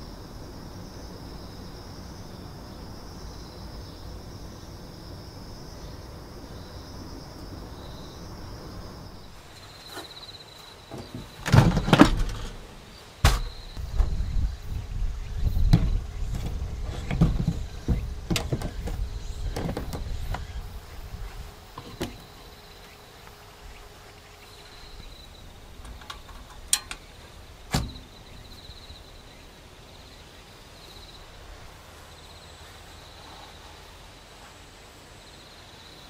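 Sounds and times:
metal table clanking: 11.0s - 13.6s, 25.8s - 27.1s
sharp metallic clicks: 25.8s - 28.1s.

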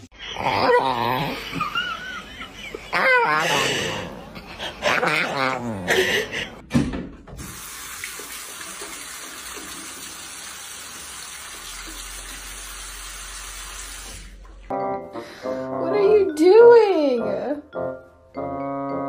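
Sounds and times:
tap running water into bowl: 7.3s - 12.6s.

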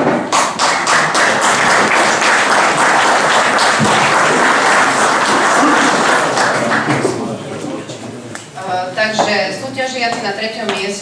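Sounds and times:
audience applauding: 0.3s - 7.5s.

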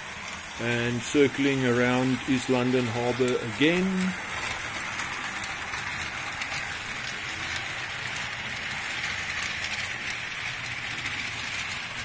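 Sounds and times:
model train whirring on track: 0.0s - 12.0s.

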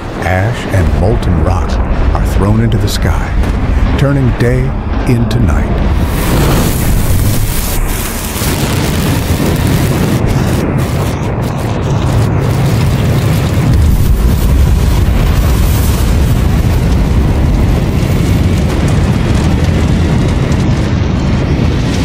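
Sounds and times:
deep explosion rumble with hiss: 0.0s - 22.0s.

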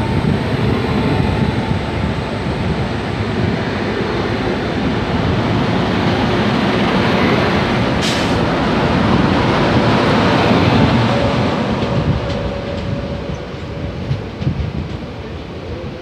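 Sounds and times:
freight train passing close: 0.0s - 16.0s
steel wheels clattering on rails: 7.8s - 16.0s.

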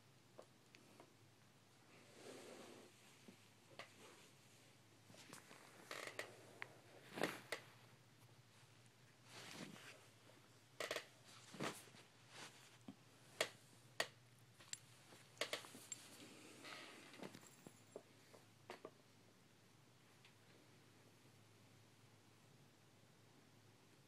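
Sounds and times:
comforter rustling: 2.0s - 10.5s, 11.2s - 13.3s.

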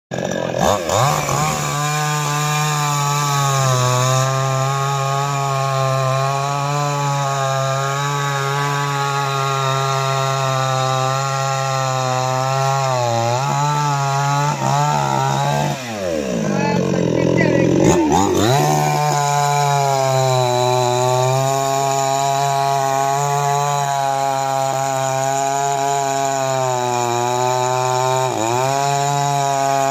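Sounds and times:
chainsaw cutting wood: 0.1s - 29.9s.

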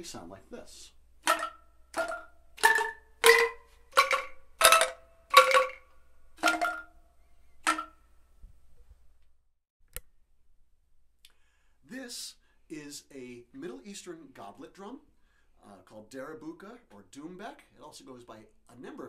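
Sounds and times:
bamboo angklung melody: 1.2s - 7.0s, 7.6s - 8.0s.

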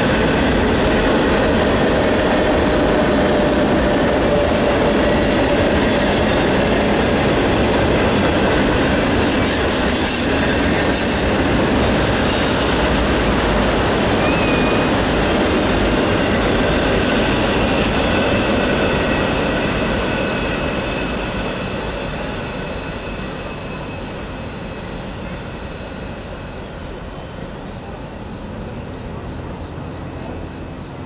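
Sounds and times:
freight train wheels on rails: 0.0s - 31.0s
high wheel squeal: 13.9s - 15.3s, 15.9s - 26.8s.

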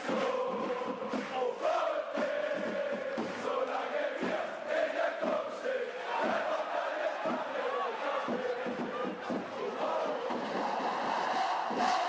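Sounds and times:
crowd shouting: 3.5s - 12.0s.

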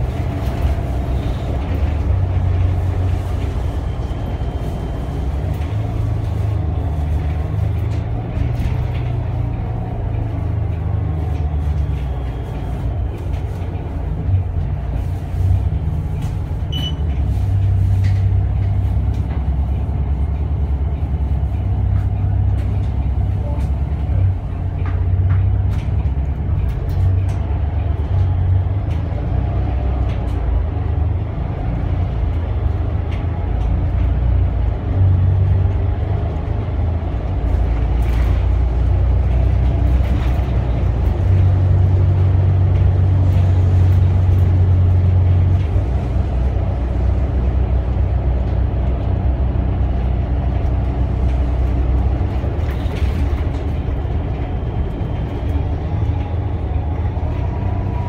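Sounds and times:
bus engine droning: 0.0s - 58.0s.

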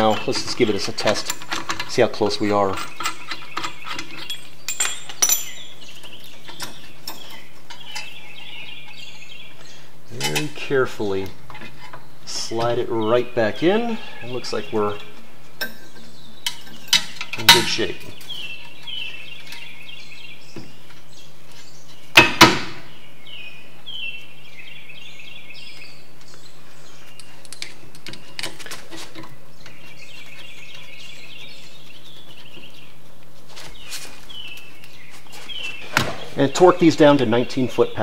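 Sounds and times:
birds chirping in trills: 0.0s - 38.0s.

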